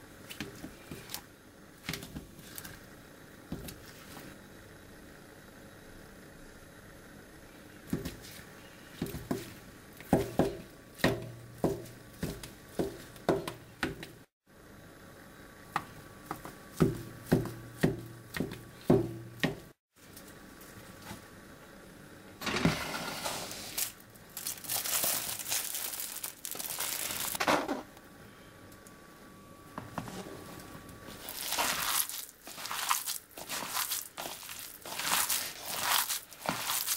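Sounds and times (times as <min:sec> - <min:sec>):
knife chopping on cutting board: 0:16.3 - 0:19.7
jelly sliding off board: 0:22.4 - 0:23.9.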